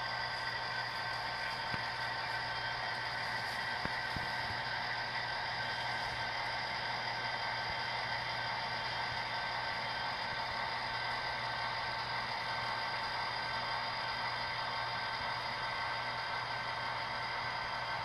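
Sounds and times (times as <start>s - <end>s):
model locomotive whirring: 0.0s - 18.0s.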